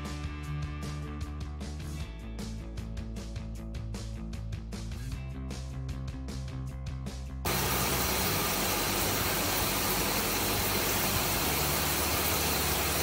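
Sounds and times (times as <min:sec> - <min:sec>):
music: 0:00.0 - 0:09.7
milling machine hiss and hum: 0:07.5 - 0:13.0.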